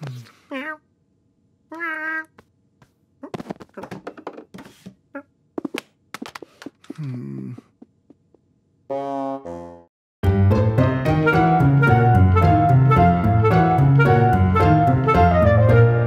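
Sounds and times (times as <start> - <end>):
man groaning: 6.9 - 7.7.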